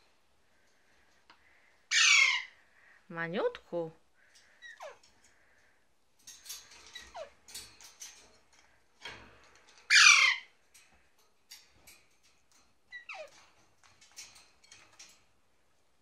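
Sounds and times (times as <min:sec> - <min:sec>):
harsh parakeet squawk: 0:01.9 - 0:02.5, 0:09.9 - 0:10.5
faint scratching and clicking: 0:04.2 - 0:15.9.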